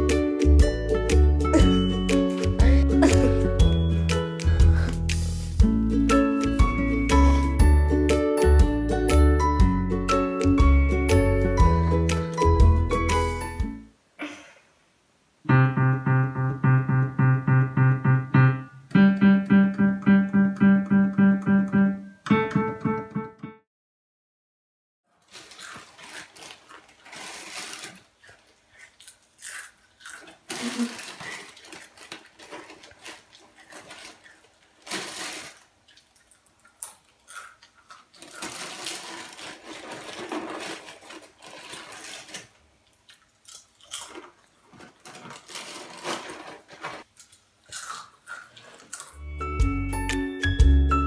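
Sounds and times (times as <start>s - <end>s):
loud chewing: 25.4s - 40.6s, 47.1s - 49.2s.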